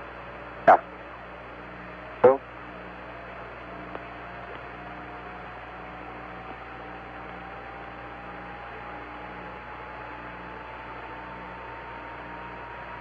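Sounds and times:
pulsing low hum: 0.0s - 13.0s.

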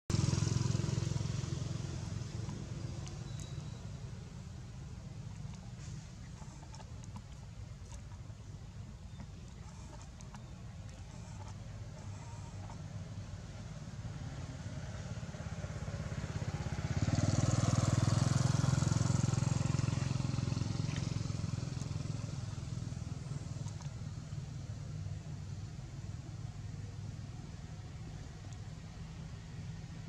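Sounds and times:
vehicle passing by: 0.1s - 8.4s, 9.1s - 24.2s
engine droning low: 0.1s - 30.0s.

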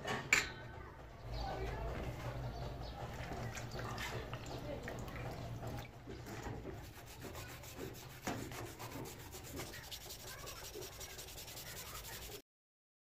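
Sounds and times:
brush scrubbing metal: 2.7s - 12.4s.

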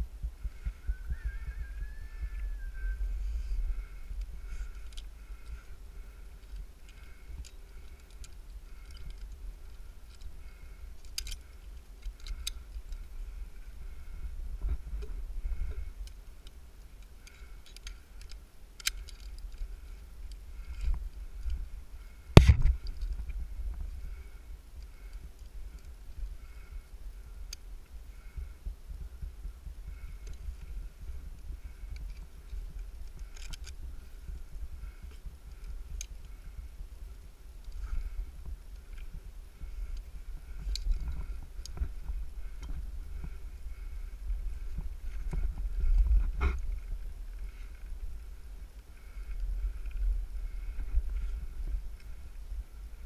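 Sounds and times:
rope and carabiner clicks: 4.2s - 13.1s, 14.9s - 21.7s, 22.4s - 23.8s, 29.9s - 36.4s, 37.6s - 43.8s.

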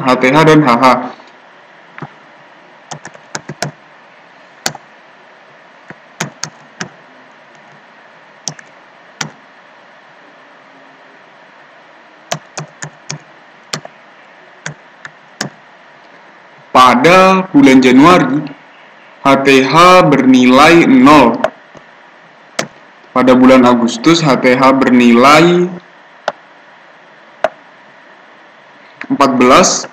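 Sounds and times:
keyboard typing: 2.9s - 3.8s, 4.6s - 4.9s, 5.8s - 7.8s, 8.4s - 9.4s, 12.3s - 14.0s, 14.6s - 15.6s, 22.6s - 22.8s.

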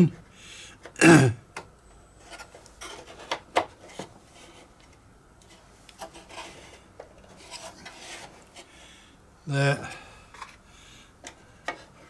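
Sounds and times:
plastic rubbing and scraping: 2.2s - 8.7s.

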